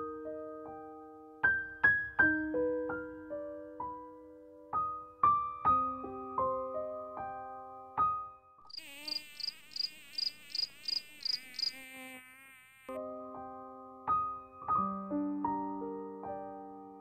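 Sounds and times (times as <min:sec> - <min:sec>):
soft piano music: 0:00.0 - 0:08.6, 0:13.0 - 0:17.0
cartoon bee buzzing: 0:08.7 - 0:13.0.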